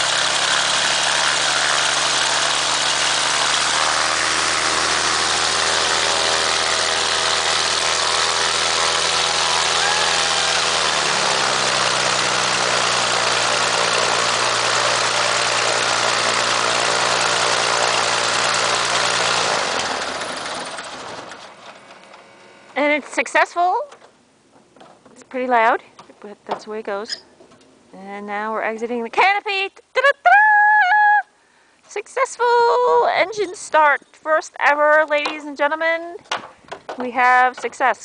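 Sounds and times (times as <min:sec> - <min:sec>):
aircraft piston engine running: 0:00.0 - 0:22.7
engine running down: 0:00.0 - 0:22.9.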